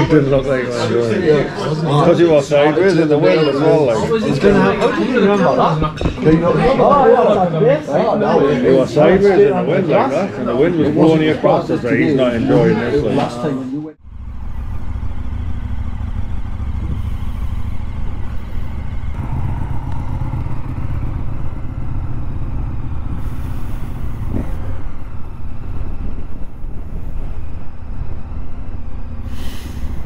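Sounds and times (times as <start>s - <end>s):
motorcycle engine running: 14.0s - 30.0s
wind rumble on microphone: 16.5s - 30.0s.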